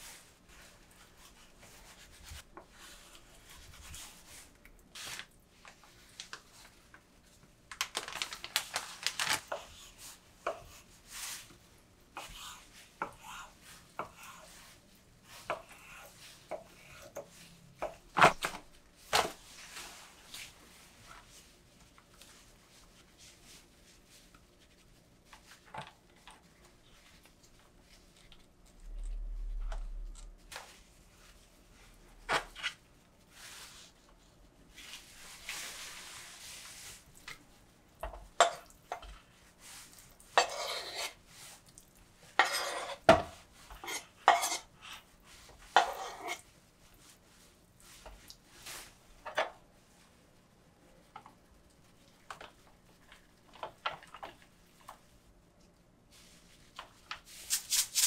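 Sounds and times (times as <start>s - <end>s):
low rumble: 28.8s - 30.4s.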